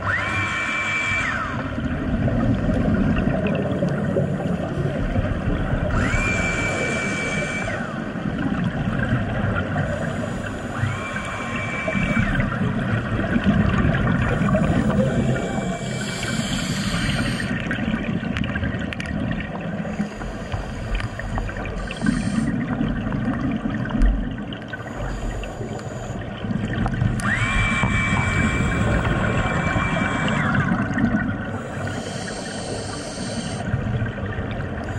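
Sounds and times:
exhaled bubbles gurgling underwater: 0.0 - 34.9
regulator hissing inhale: 10.0 - 12.1, 14.3 - 17.7, 19.9 - 22.7, 24.8 - 26.4, 31.5 - 33.8.

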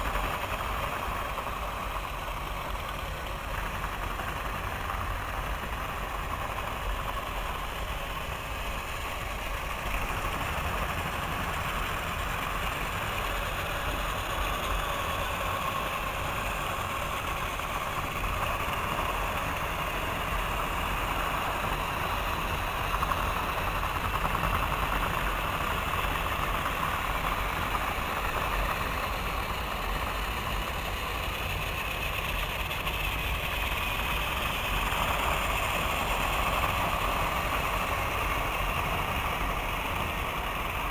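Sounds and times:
toy train motors whirring: 0.0 - 40.9
toy train wheels on track joints: 0.0 - 40.9.

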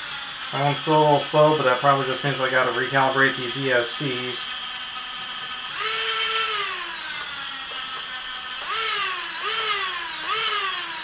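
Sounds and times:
drone motors whining: 0.0 - 11.0
motor throttle blips: 2.7 - 11.0.

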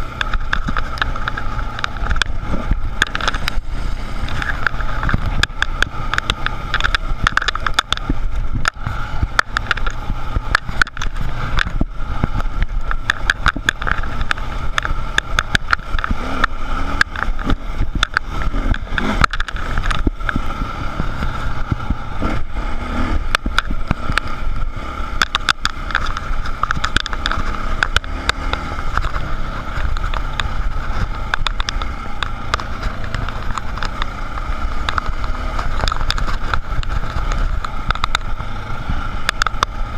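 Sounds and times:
dirt bike engine: 0.0 - 39.9.

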